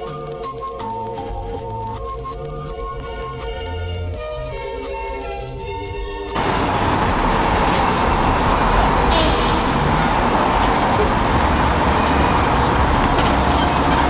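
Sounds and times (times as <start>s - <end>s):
city street traffic: 6.4s - 14.0s.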